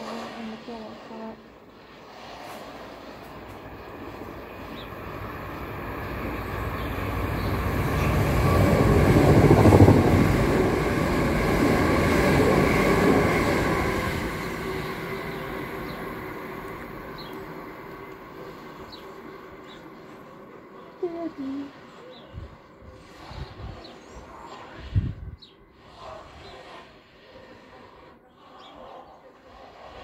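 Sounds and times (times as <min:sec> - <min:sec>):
train wheels rumbling on track: 0:00.0 - 0:20.7.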